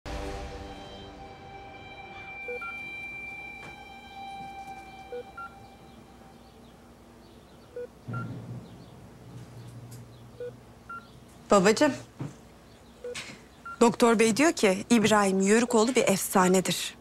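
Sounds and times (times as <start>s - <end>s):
patient monitor two-tone beep: 0.5s - 6.4s.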